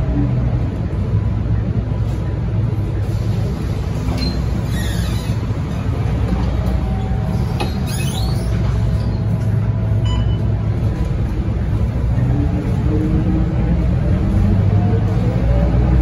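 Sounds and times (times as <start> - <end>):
bus diesel engine rumbling: 0.0 - 16.0
high squeaks: 7.6 - 9.2.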